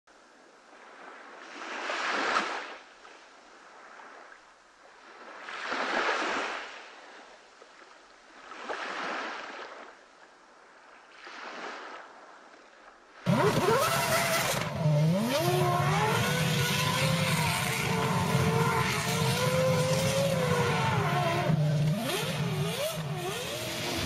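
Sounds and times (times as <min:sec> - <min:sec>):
waves washing onto beach: 0:00.7 - 0:10.0, 0:13.1 - 0:24.0.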